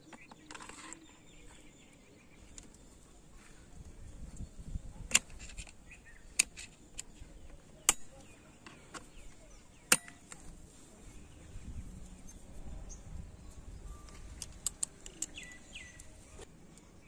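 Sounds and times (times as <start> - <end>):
metal tools clicking: 9.9 - 10.5, 14.4 - 16.1.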